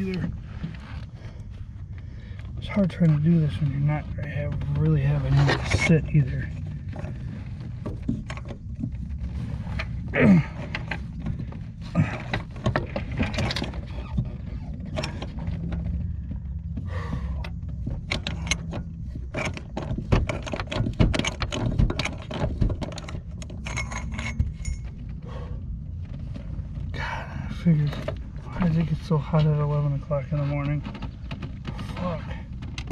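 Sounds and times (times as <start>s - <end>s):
loose metal rattling: 0.0s - 32.9s
man grunting: 10.1s - 10.6s.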